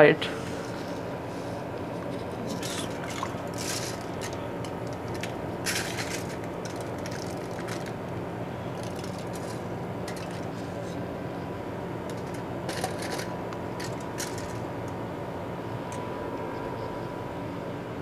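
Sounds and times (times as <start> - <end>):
steady hum: 0.0 - 18.0
aluminium foil crinkling: 2.0 - 8.0, 8.7 - 10.8.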